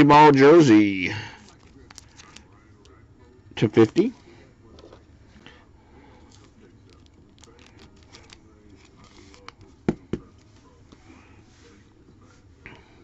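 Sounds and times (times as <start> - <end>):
cards rustling: 1.2 - 3.0, 3.6 - 11.3.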